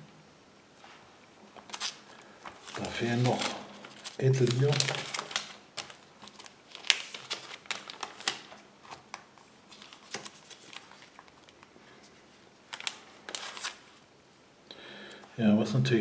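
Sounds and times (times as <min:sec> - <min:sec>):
plastic binder pages crinkling: 0:01.5 - 0:14.0.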